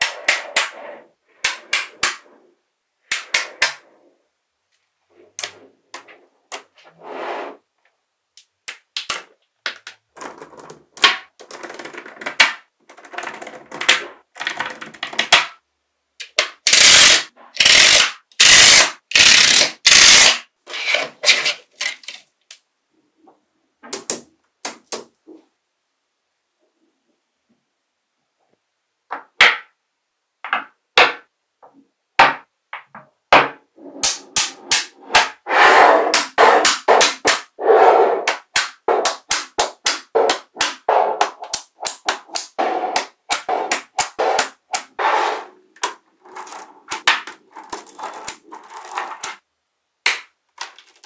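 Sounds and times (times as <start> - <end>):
magnetic balls clicking together: 16.2 - 20.4, 38.3 - 45.0, 45.8 - 49.4
magnetic ball sheets rattling: 38.2 - 49.4.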